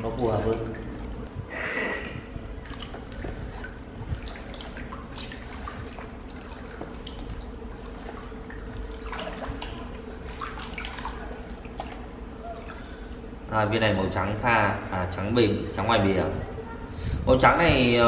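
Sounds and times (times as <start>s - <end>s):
water splashes: 0.0s - 13.3s
water sloshing and dripping: 0.0s - 14.9s.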